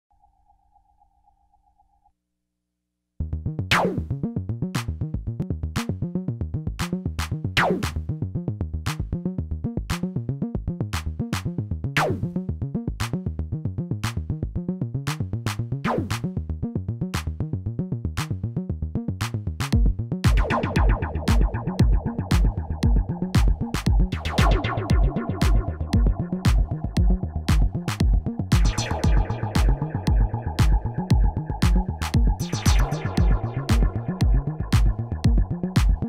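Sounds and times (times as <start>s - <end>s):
pulsing synthesizer bass sequence: 3.3s - 36.0s
drum machine clicks: 19.8s - 36.0s.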